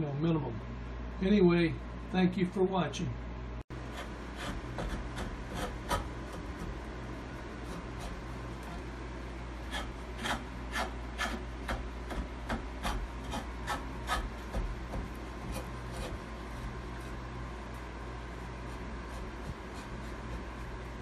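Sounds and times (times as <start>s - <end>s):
steady low hum: 0.0s - 21.0s
knife scraping wood: 3.8s - 6.8s, 7.6s - 8.8s, 9.6s - 17.2s, 18.5s - 20.8s.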